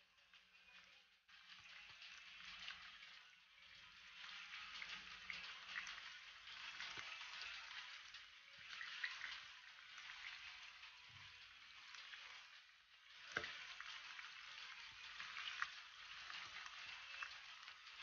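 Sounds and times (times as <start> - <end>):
fish sizzling in hot oil: 4.0 - 18.0.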